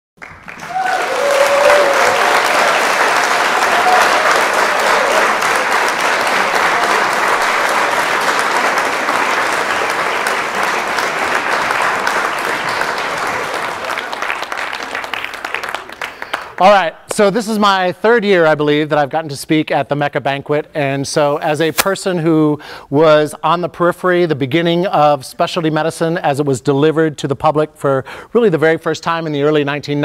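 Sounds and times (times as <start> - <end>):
audience applauding: 0.2 - 17.0
person speaking: 16.6 - 19.8.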